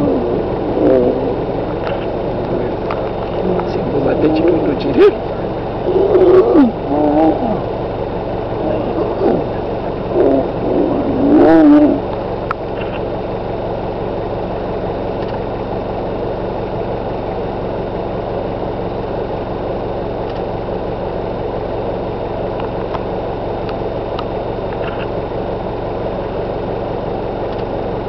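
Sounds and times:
lions snarling and growling: 0:00.0 - 0:12.2
vehicle engine idling: 0:00.0 - 0:28.0.

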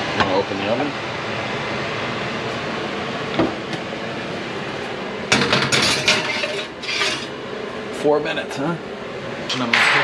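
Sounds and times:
oven rack and dish rattling: 0:05.3 - 0:07.3.

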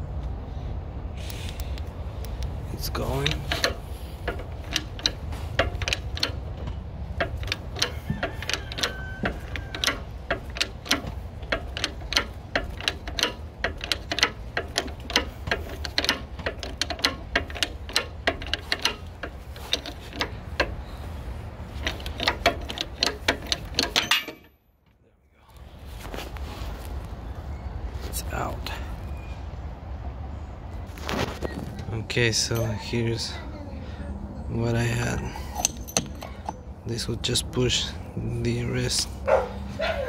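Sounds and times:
hydraulic press clicking: 0:03.2 - 0:20.9, 0:21.6 - 0:24.5, 0:35.4 - 0:36.7.

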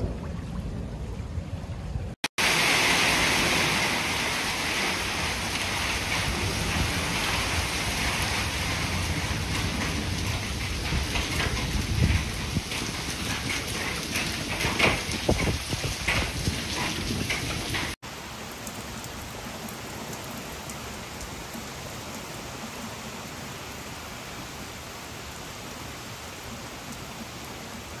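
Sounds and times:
heavy rain with thumps and gusts: 0:00.0 - 0:28.0
rain pouring on a shingle roof: 0:02.2 - 0:28.0.

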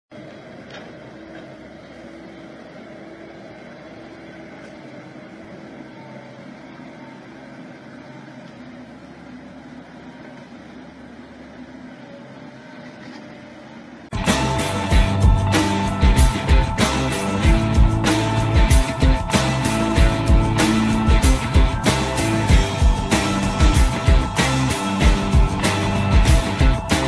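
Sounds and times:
faint diesel engine running: 0:14.1 - 0:27.0.

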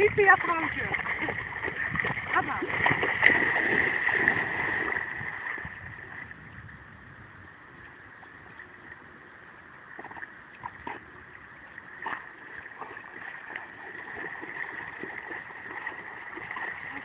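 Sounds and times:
dog swimming and splashing: 0:00.0 - 0:06.2, 0:10.0 - 0:17.0.

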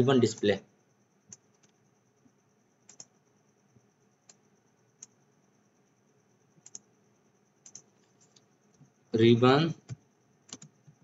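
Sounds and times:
faint computer mouse clicks: 0:06.6 - 0:06.9, 0:07.6 - 0:08.9, 0:09.9 - 0:11.0.

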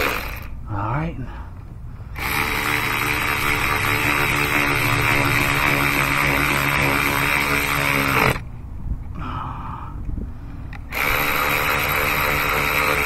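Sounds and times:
electric ratchet running: 0:00.0 - 0:00.6, 0:02.2 - 0:08.4, 0:10.8 - 0:13.0.

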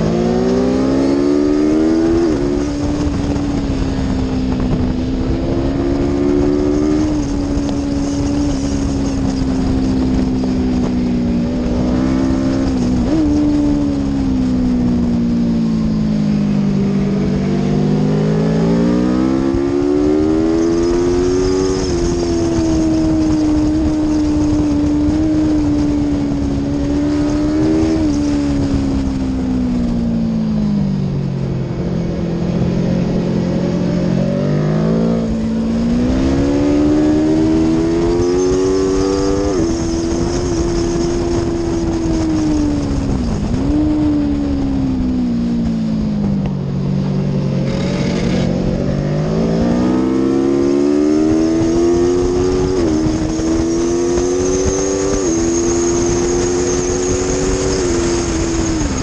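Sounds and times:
motorcycle engine accelerating: 0:00.0 - 0:59.0
wind rush: 0:00.0 - 0:59.0.

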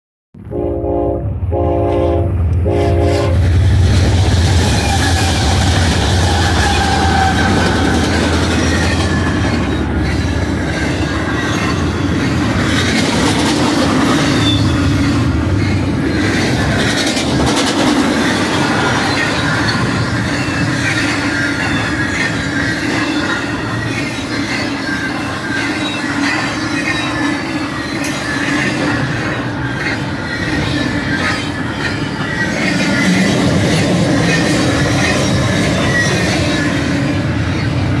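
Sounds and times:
diesel locomotive drone: 0:00.4 - 0:38.0
train wheels rumbling on rail: 0:00.4 - 0:38.0
wheel squeal: 0:04.5 - 0:12.4, 0:14.2 - 0:17.0, 0:18.2 - 0:37.8.

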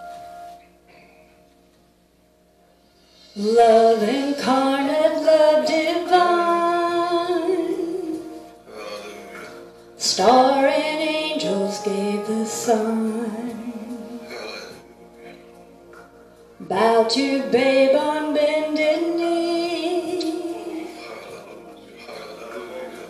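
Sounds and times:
church band music: 0:00.0 - 0:01.8, 0:02.8 - 0:23.0
woman singing into microphone: 0:03.4 - 0:08.4, 0:10.0 - 0:14.2, 0:16.6 - 0:21.0.

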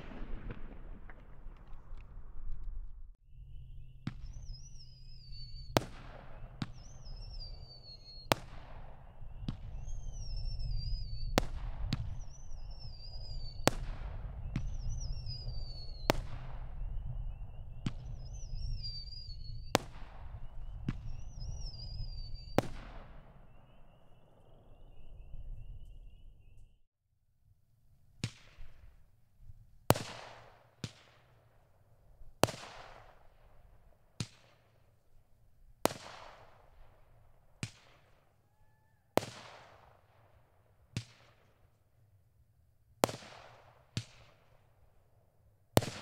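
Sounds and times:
firework shots: 0:00.0 - 0:03.2, 0:04.0 - 0:25.6, 0:29.9 - 0:31.4, 0:32.2 - 0:34.8, 0:35.8 - 0:38.3, 0:39.2 - 0:41.6, 0:43.0 - 0:44.6, 0:45.8 - 0:46.0
low rumble: 0:00.0 - 0:04.3
faint wavering whistle: 0:03.3 - 0:08.3, 0:09.2 - 0:11.4, 0:14.4 - 0:22.6
falling whistle: 0:03.6 - 0:05.8.

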